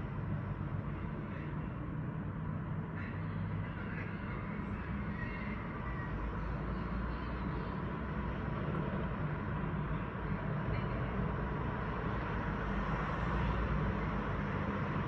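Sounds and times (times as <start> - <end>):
city traffic rumble: 0.0 - 15.0.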